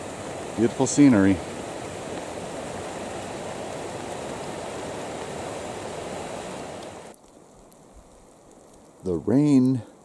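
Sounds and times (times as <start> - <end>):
creek water rushing: 0.0 - 7.2.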